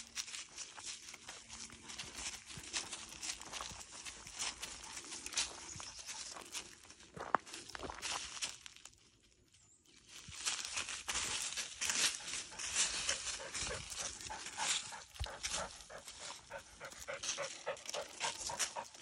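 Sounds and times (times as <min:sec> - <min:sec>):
dry leaves crunching underfoot: 0:00.0 - 0:09.3, 0:09.9 - 0:19.0
dog panting: 0:00.7 - 0:06.6, 0:11.8 - 0:19.0.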